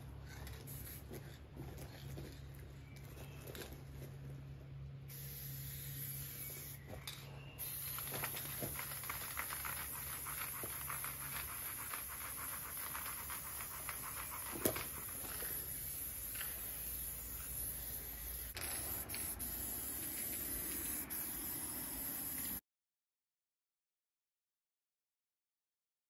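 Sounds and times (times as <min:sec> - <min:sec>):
spray paint can hissing: 0:00.6 - 0:01.2, 0:05.1 - 0:06.8, 0:07.6 - 0:22.6.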